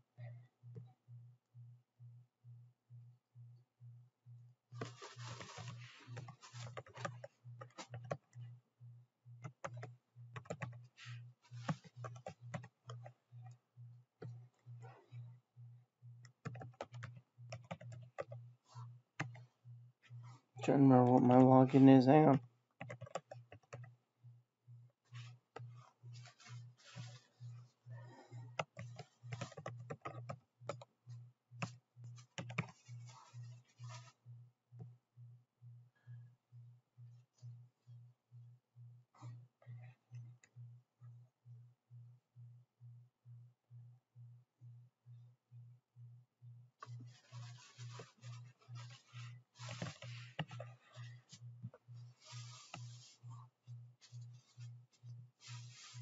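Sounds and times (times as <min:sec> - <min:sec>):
faint pulsing low hum: 0:00.0 - 0:56.0
keyboard typing: 0:04.8 - 0:08.4, 0:09.4 - 0:10.9, 0:11.6 - 0:13.6, 0:16.2 - 0:18.4, 0:19.2 - 0:19.5, 0:20.9 - 0:23.9, 0:28.0 - 0:30.9, 0:31.6 - 0:34.1, 0:46.8 - 0:51.4.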